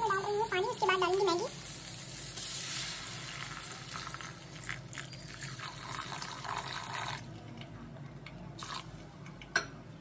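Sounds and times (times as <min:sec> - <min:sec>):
water pouring into a pan: 0:00.2 - 0:07.3.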